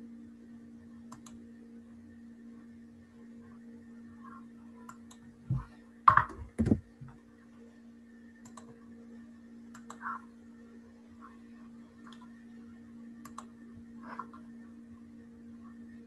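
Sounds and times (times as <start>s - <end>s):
low electrical hum: 0.0s - 16.0s
keyboard and mouse clicks: 1.1s - 1.4s, 8.4s - 8.8s, 9.7s - 10.1s, 13.2s - 13.5s
thumps against desk: 5.5s - 6.8s.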